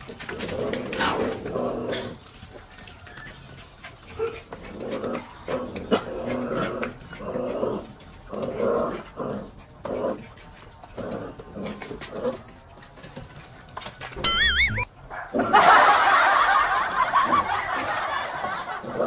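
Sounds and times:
puppy growling: 0.0 - 2.3, 3.1 - 12.6.

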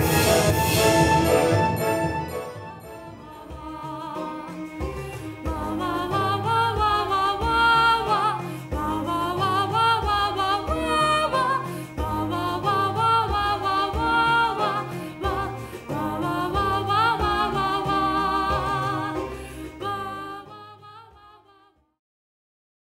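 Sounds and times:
steady bass line: 0.0 - 4.0
music with singing voice: 0.0 - 21.8.

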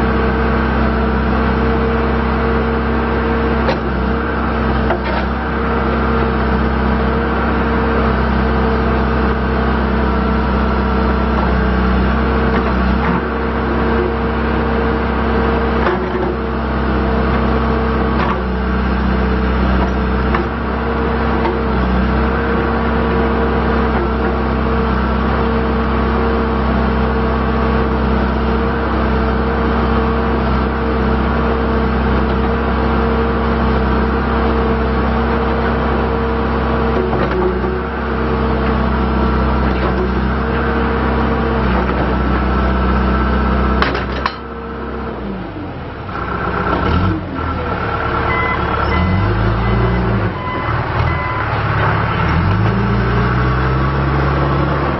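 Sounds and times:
diesel engine running: 0.0 - 54.9
hydraulic whining tone: 46.8 - 54.9.

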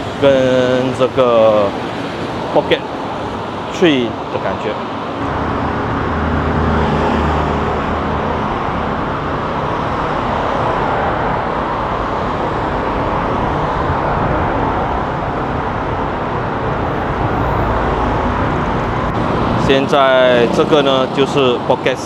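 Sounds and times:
road traffic noise: 0.0 - 22.0
vehicle engine low hum: 5.0 - 21.6.

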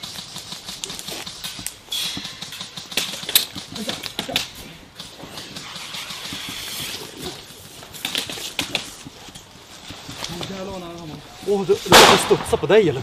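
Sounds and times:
soft rustle of movement: 4.5 - 11.9.

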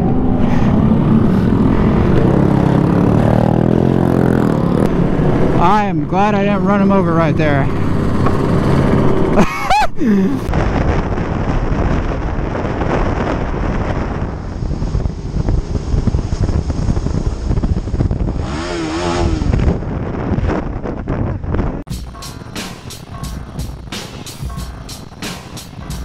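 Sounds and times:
motorcycle engine: 0.0 - 9.4, 15.6 - 20.1, 21.9 - 26.0
wind buffeting microphone: 0.0 - 25.2
road noise: 0.0 - 26.0
wavering pitched sound: 21.9 - 26.0.

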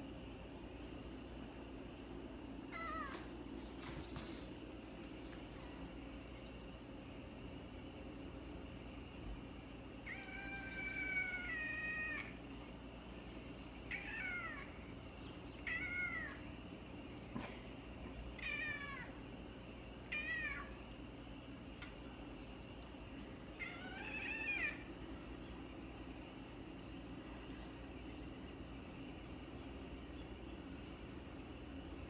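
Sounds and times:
cat meowing: 2.7 - 3.2, 10.1 - 12.4, 13.9 - 14.8, 15.6 - 16.4, 18.4 - 19.2, 20.1 - 20.8, 23.6 - 24.9.

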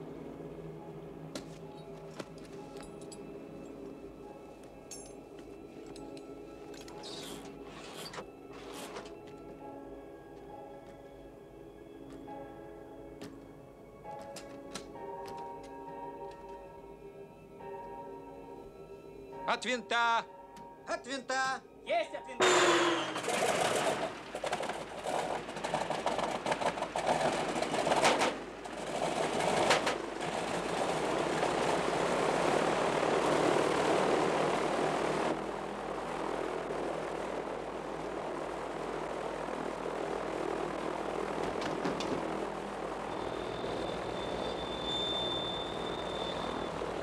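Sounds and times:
radial aircraft engine starting: 0.0 - 11.8, 22.4 - 47.0.

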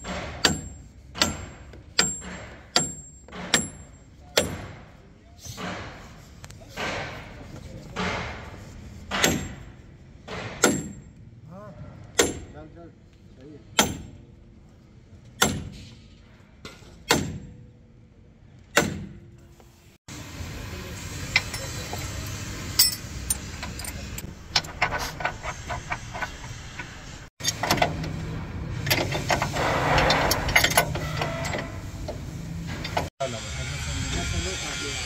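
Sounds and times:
spanner clinking on bolts: 0.0 - 4.6, 21.3 - 33.1
steel bar striking metal: 0.0 - 4.8, 9.1 - 9.7, 12.2 - 12.5.

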